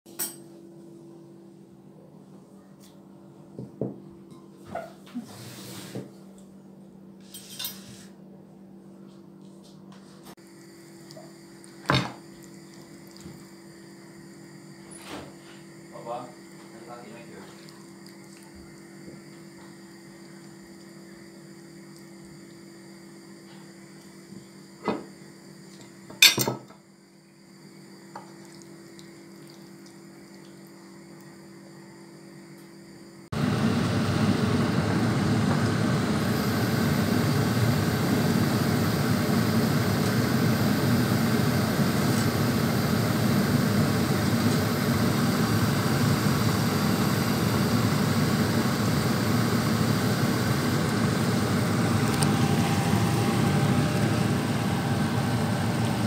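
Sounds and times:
food sizzling in frying pan: 33.4 - 56.0.

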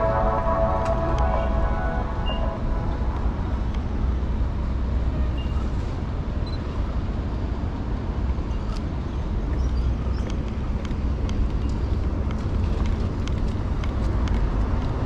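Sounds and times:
background music: 0.0 - 4.4
rumble of passing cars: 0.0 - 15.0.

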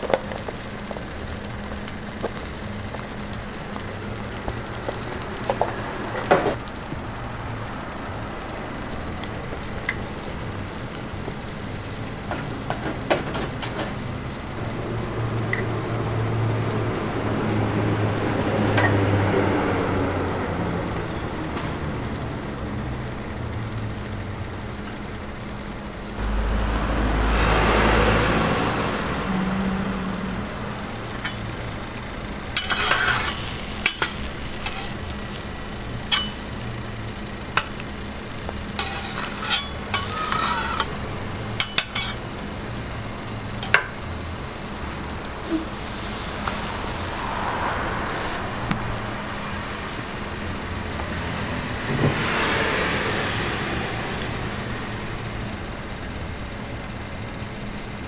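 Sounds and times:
egg sizzling on a griddle: 0.0 - 58.0
low rumble: 26.2 - 32.4
metal spatula scraping griddle: 32.6 - 35.4, 36.0 - 36.4, 38.7 - 41.0, 41.6 - 42.2, 45.4 - 47.0.

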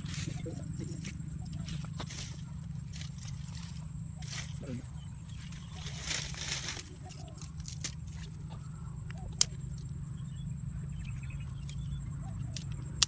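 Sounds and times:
sticks rustling: 0.0 - 9.9
steady low rumble: 0.0 - 13.0.

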